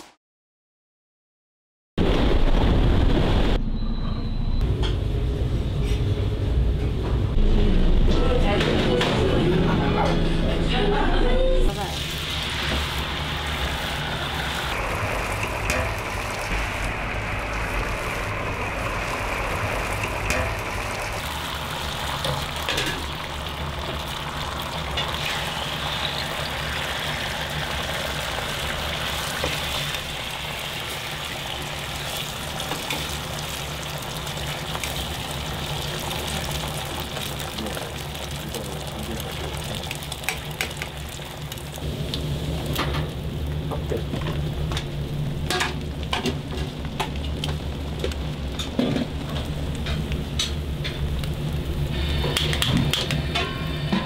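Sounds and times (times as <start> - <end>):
low hum: 2.3 - 11.8
egg batter sizzling on griddle: 11.8 - 54.0.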